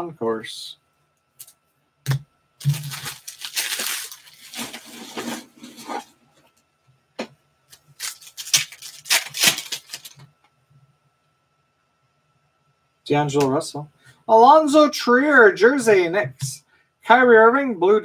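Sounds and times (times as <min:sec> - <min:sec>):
foil wrappers ripping and crinkling: 0:02.6 - 0:06.0, 0:07.7 - 0:10.3.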